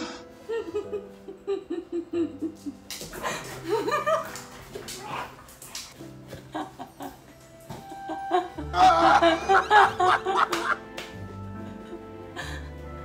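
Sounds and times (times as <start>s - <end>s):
soft background music: 0.0s - 13.0s
woman laughing: 0.5s - 4.4s, 8.0s - 10.8s.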